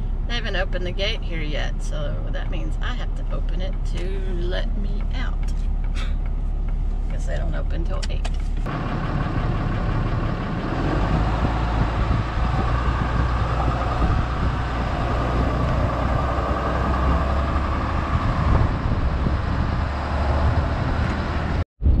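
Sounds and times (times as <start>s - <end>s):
truck engine: 0.0s - 22.0s
tyre and wind noise: 9.6s - 22.0s.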